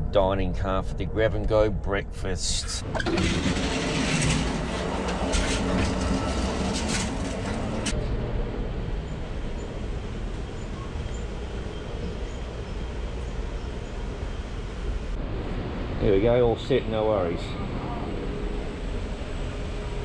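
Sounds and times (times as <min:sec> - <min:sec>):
train rumbling: 0:00.0 - 0:20.0
rattling clatter: 0:02.8 - 0:08.0.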